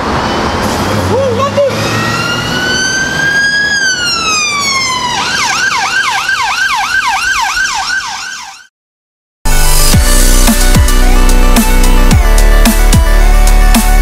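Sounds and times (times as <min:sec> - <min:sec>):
street traffic: 0:00.0 - 0:08.7
emergency vehicle siren: 0:00.1 - 0:08.7.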